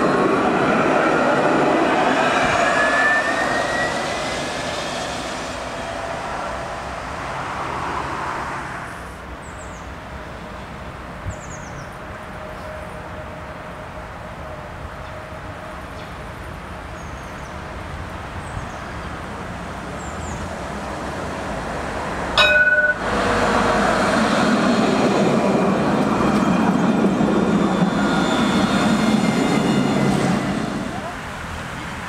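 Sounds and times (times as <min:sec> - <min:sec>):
tram passing: 0:00.0 - 0:32.0
loud warning tone: 0:22.4 - 0:24.1.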